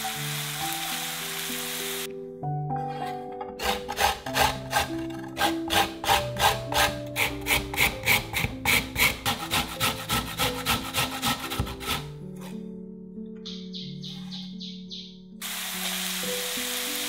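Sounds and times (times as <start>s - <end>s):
carrot rasping on metal grater: 3.6s - 12.1s.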